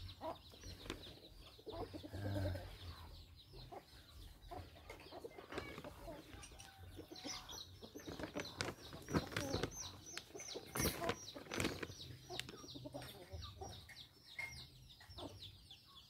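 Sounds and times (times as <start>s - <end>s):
chickens clucking: 0.0s - 16.0s
soil rustling in plastic bag: 5.5s - 6.4s, 7.3s - 12.6s.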